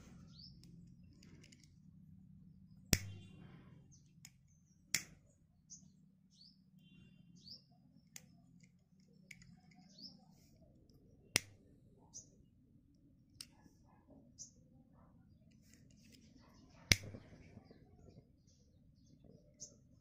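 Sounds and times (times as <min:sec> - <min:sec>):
lighter clicking: 0:02.9 - 0:03.1.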